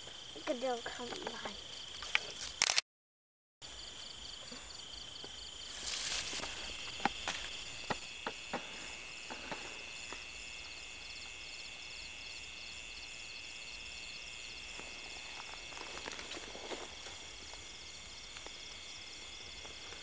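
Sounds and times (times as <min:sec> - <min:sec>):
insect trill: 0:00.0 - 0:02.7, 0:03.6 - 0:20.0
dry grass rustling: 0:05.6 - 0:10.4, 0:14.7 - 0:20.0
dry grass stalks snapping: 0:15.3 - 0:17.6.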